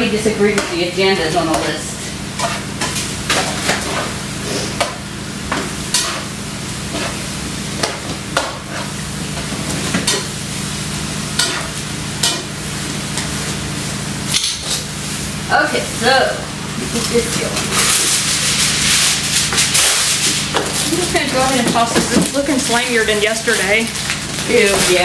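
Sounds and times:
chicken sizzling in oil: 0:01.9 - 0:21.6.

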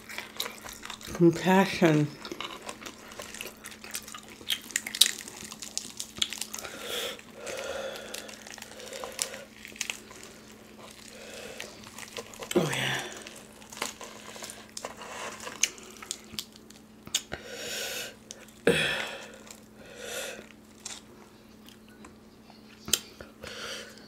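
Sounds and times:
chewing and biting: 0:00.0 - 0:01.2, 0:02.2 - 0:17.4, 0:20.4 - 0:23.1
fried chicken crackling and tearing: 0:00.0 - 0:01.2, 0:02.2 - 0:17.3, 0:19.2 - 0:19.8.

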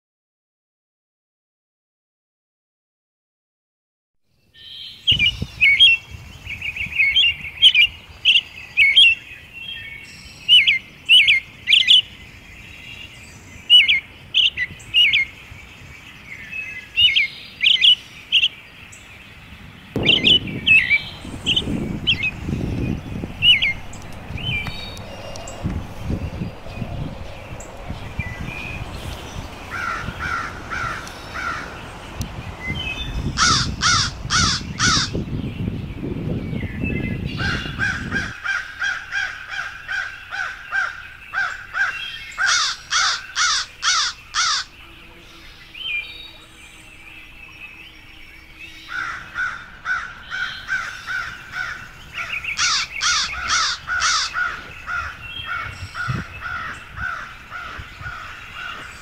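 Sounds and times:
low rumble: 0:20.0 - 0:31.0
crows cawing: 0:29.7 - 0:31.8, 0:33.4 - 0:35.2, 0:37.4 - 0:44.7, 0:48.9 - 0:59.0.

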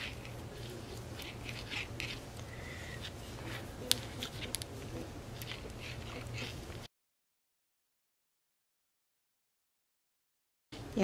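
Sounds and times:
steady low hum: 0:00.0 - 0:06.9.

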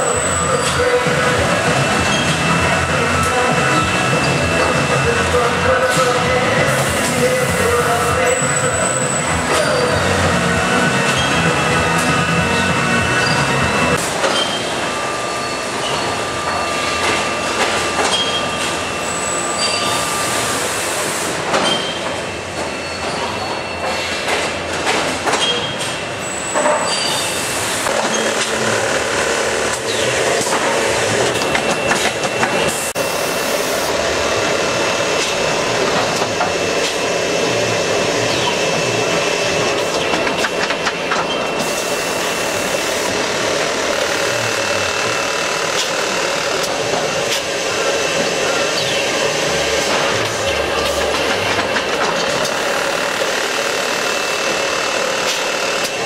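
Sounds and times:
high whine: 0:00.0 - 0:21.4
machinery clattering: 0:21.4 - 0:56.0.

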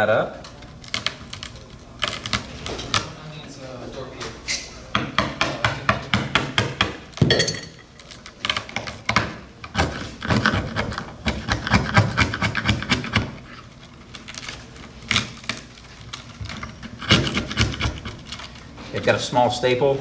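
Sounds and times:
screwdriver scraping wood: 0:09.7 - 0:13.6, 0:15.1 - 0:18.6.

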